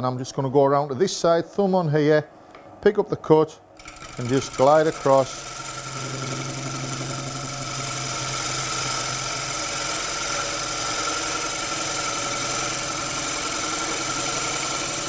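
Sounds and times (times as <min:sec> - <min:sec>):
gouge rasping on spinning wood: 0:03.8 - 0:15.0
lathe running quietly: 0:03.8 - 0:15.0.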